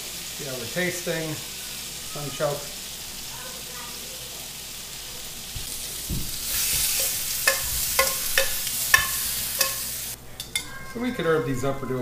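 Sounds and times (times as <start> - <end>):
vegetables sizzling in oil: 0.0 - 10.2
dull knock: 6.0 - 6.4
metal tongs clinking on pan: 6.4 - 11.0.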